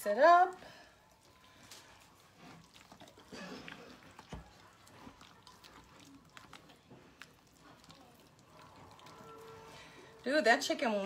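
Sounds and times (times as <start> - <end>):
spatula squelching in thick mixture: 0.0 - 11.0.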